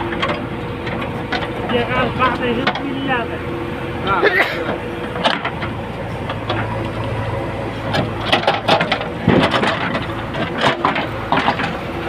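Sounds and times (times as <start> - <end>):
diesel engine under load: 0.0 - 12.0.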